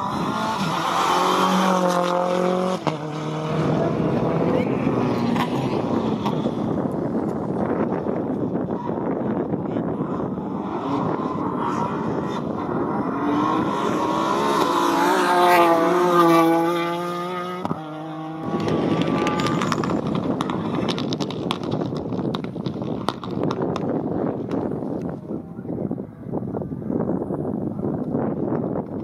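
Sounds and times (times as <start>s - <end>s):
rally car engine at full throttle: 0.0s - 29.0s
engine crackles: 18.4s - 25.1s.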